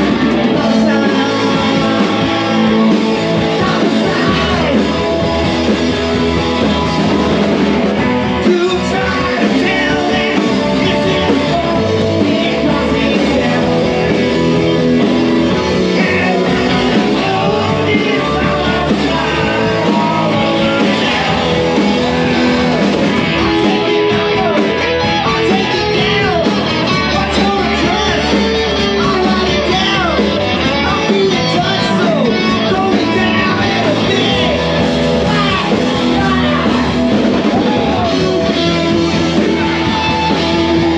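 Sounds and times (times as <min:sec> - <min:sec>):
electric guitar: 0:00.0 - 0:40.9
person singing: 0:00.0 - 0:40.9
rock band playing loud: 0:00.0 - 0:40.9.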